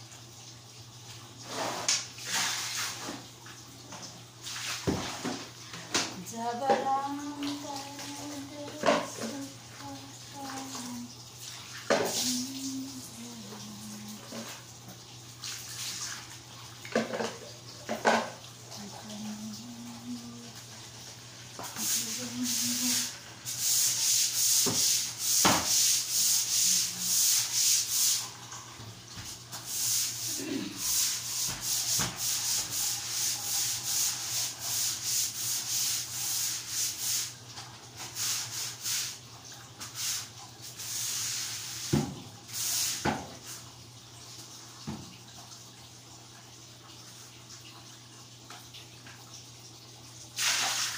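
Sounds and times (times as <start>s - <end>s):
brush scrubbing tiled floor: 1.4s - 3.2s, 4.4s - 5.5s, 6.4s - 14.6s, 15.4s - 16.3s, 21.6s - 28.5s, 29.2s - 39.2s, 39.8s - 43.6s, 50.4s - 50.9s.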